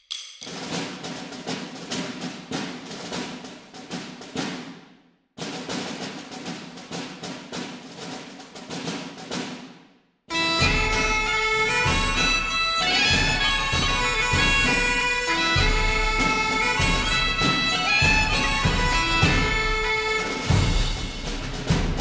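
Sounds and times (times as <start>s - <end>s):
drum-heavy music: 10.3s - 22.0s
wind instrument tune with drums: 10.3s - 22.0s.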